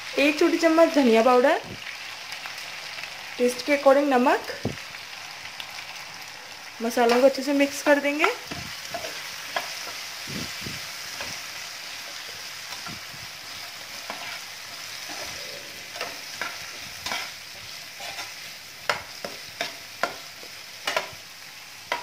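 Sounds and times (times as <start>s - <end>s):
potatoes sizzling in oil: 0.0s - 22.0s
spatula scraping pan: 13.6s - 21.2s.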